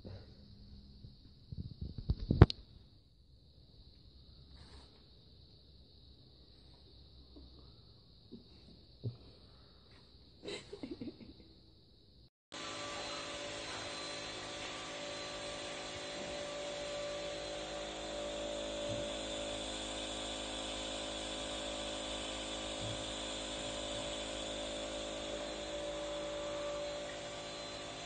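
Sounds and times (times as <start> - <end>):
nebulizer compressor humming: 12.5 - 28.0.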